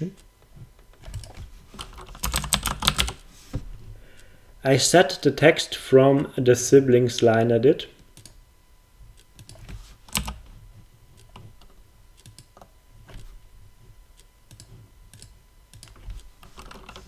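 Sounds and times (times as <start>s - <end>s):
keyboard keys clicking: 1.0s - 3.2s, 9.4s - 10.4s.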